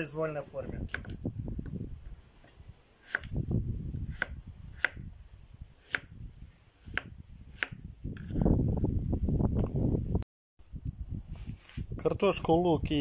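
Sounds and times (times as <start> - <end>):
knife chopping on cutting board: 4.1 - 5.0, 5.8 - 6.1, 6.8 - 7.8.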